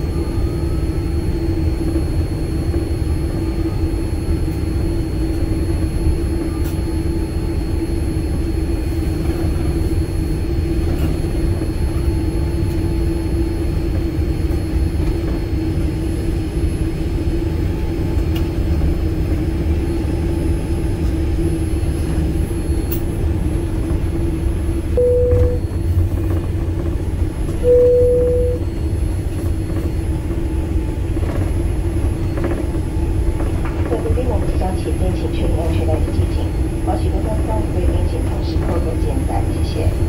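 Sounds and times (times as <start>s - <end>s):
airliner cabin rumble and hum: 0.0s - 40.0s
short steady tones: 25.0s - 25.9s, 27.6s - 28.7s.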